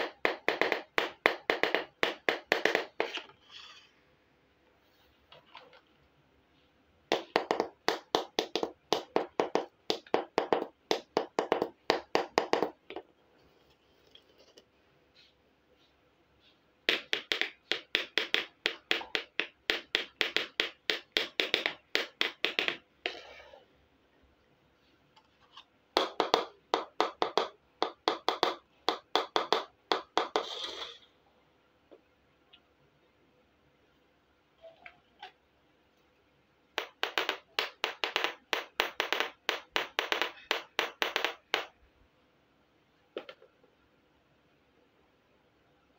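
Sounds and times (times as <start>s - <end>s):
plastic toy tapping on hard surface: 16.9s - 22.8s, 36.8s - 41.7s.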